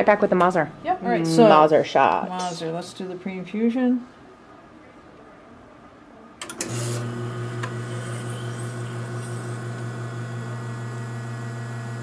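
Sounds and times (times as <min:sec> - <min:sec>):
espresso machine pump humming: 0:06.6 - 0:12.0.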